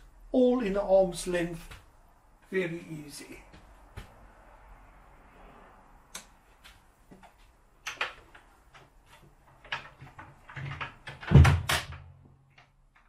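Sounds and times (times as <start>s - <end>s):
wooden cabinet doors knocking shut: 11.2s - 12.0s.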